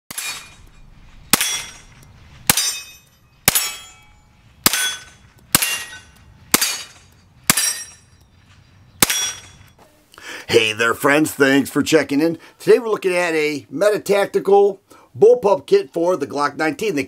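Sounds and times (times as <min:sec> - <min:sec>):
gunshots with ringing tail: 0:09.0 - 0:09.6.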